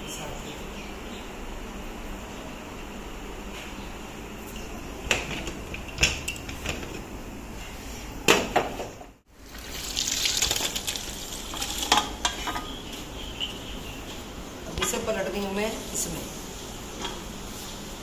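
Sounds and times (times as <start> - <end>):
metal cookware clanking: 11.5 - 12.8.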